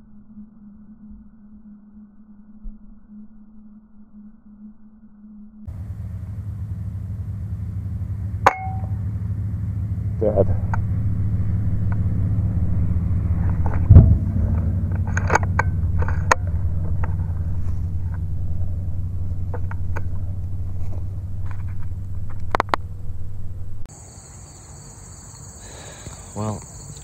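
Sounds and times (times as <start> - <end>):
steady low rumble: 0.0 - 23.9
crickets chirping: 0.0 - 27.0
air rifle shot thump: 11.7 - 18.3.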